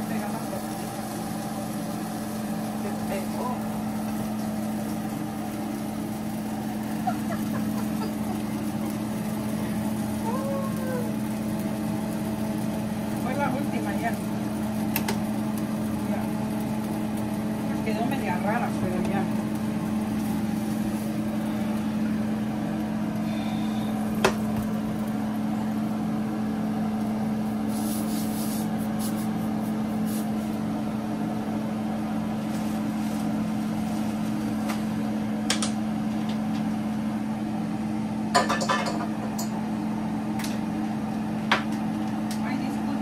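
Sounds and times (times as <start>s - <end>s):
machine hum: 0.0s - 43.0s
kitchen utensils clinking: 38.4s - 39.5s.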